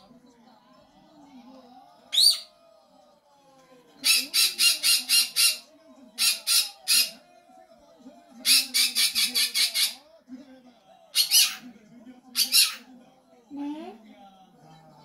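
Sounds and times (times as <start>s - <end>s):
parrot squawking: 2.1s - 2.5s, 4.0s - 7.2s, 8.4s - 10.0s, 11.2s - 11.6s, 12.4s - 12.9s.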